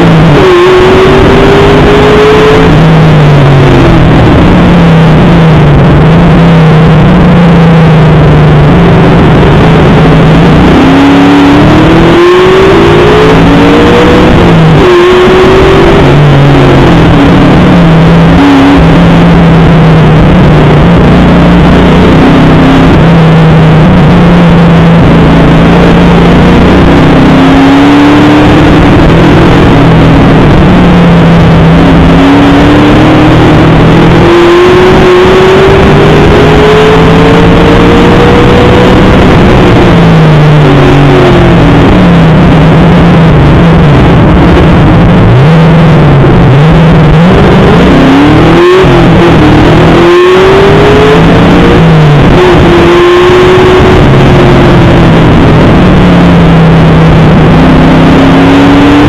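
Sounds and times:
race car engine revving: 0.0 - 59.0
road and wind noise: 0.0 - 59.0.

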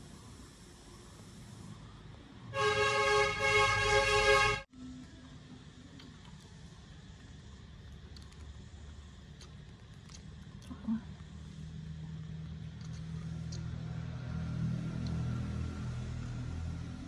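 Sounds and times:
low motor hum: 4.8 - 17.0.

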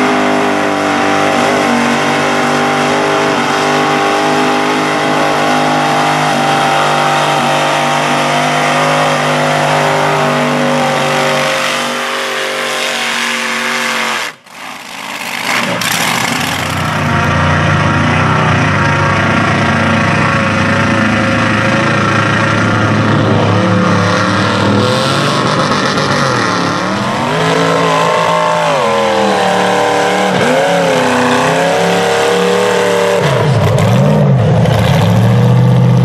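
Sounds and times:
engine running at lower revs: 0.0 - 14.4, 15.4 - 36.0
truck engine revving: 0.0 - 36.0.

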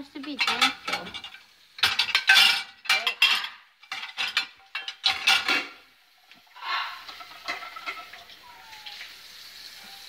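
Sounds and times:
dishes and cutlery clinking: 0.2 - 5.9, 6.8 - 8.6.

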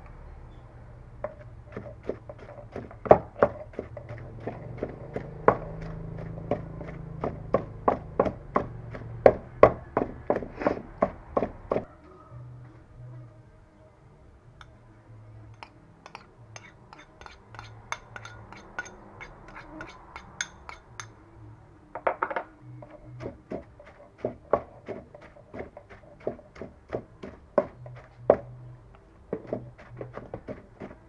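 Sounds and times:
pestle pounding in mortar: 1.3 - 11.9, 23.2 - 28.5, 29.3 - 31.0.

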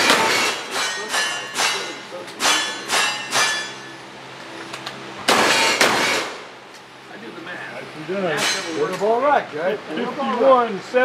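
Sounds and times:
steel target ringing: 0.0 - 4.0, 5.3 - 6.4, 8.4 - 8.9
shotgun blast: 5.3 - 6.5.

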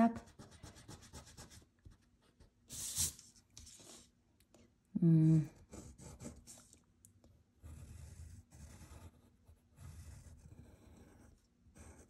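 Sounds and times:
pencil sketching on paper: 0.0 - 1.7, 5.5 - 6.7, 7.6 - 12.0.

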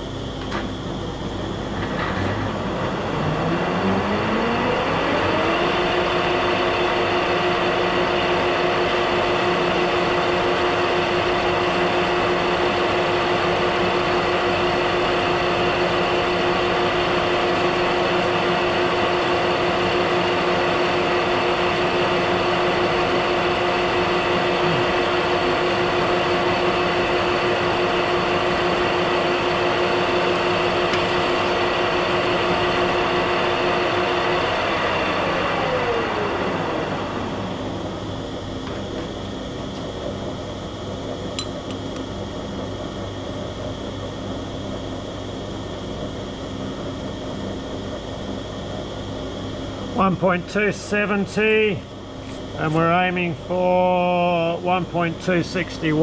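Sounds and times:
lathe gear whine: 0.0 - 56.0.

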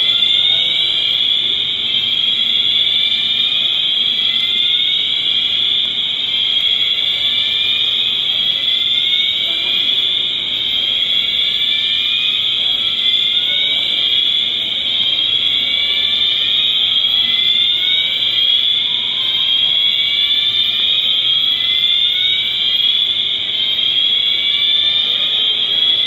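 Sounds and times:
fire alarm with rising sweeps: 0.0 - 26.0.

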